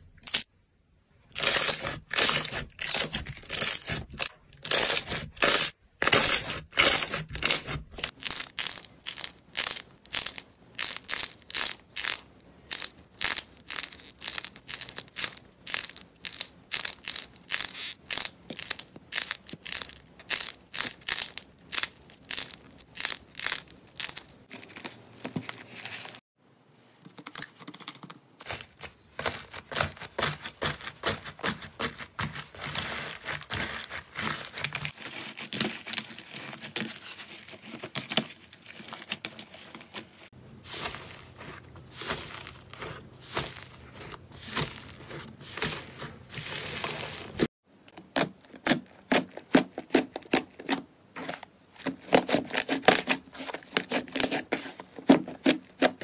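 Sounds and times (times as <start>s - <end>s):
slime crackling: 1.4s - 25.8s, 40.6s - 47.5s
foam-bead slime crunching: 1.4s - 26.2s, 28.4s - 47.5s, 48.1s - 56.0s.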